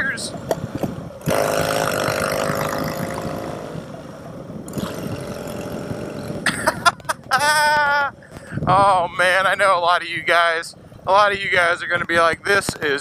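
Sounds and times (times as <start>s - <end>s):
motorcycle engine revving: 0.4s - 6.8s.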